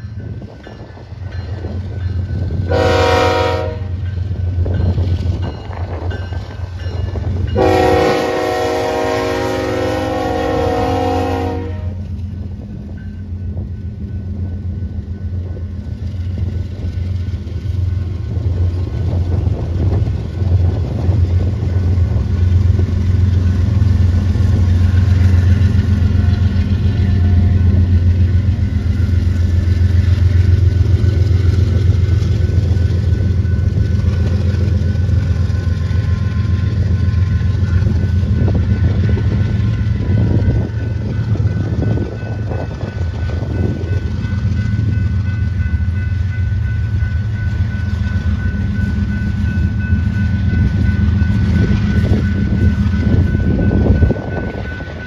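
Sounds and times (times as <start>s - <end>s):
diesel locomotive engines droning: 0.0s - 55.0s
train air horn blasts: 2.7s - 4.0s, 7.6s - 12.0s.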